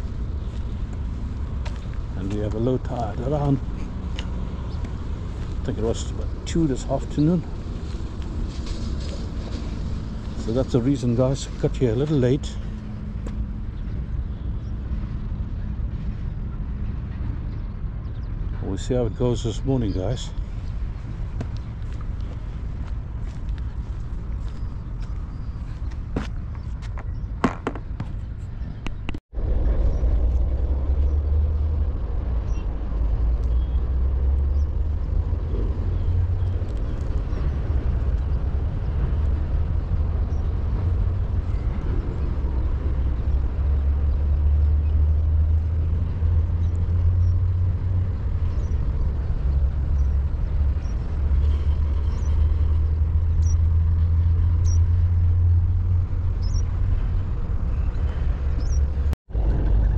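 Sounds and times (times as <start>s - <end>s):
low rumble: 20.3s - 59.9s.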